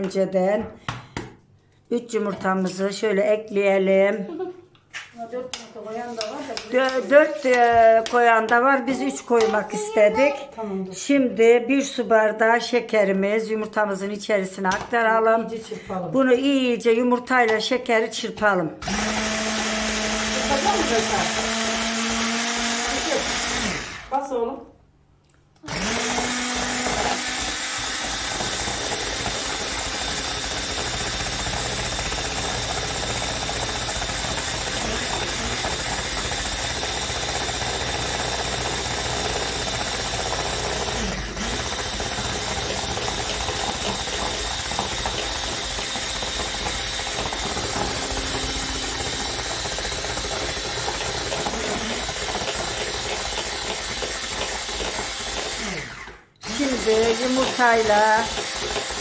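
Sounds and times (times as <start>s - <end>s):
electric hand mixer whipping: 18.8s - 24.2s, 25.6s - 59.0s.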